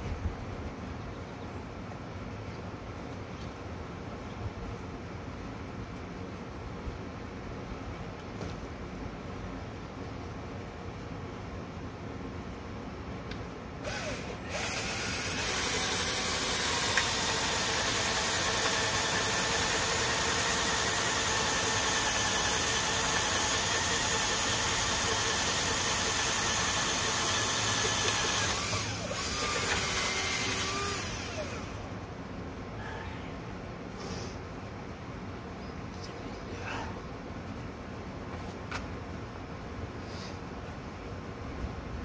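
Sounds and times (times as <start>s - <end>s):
power drill boring into wood: 13.8s - 31.8s.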